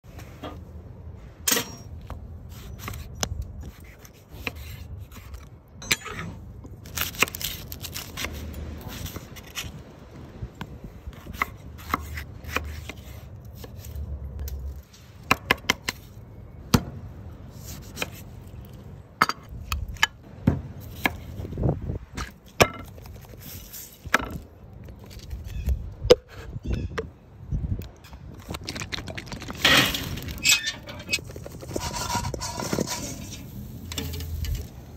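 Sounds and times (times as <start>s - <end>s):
scraping on metal grill grate: 29.3s - 34.9s.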